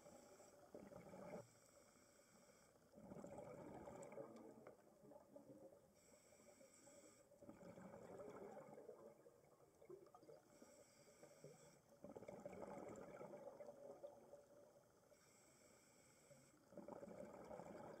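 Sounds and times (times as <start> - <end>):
exhaled air bubbling underwater: 2.9 - 6.4, 7.3 - 15.1, 16.6 - 18.0.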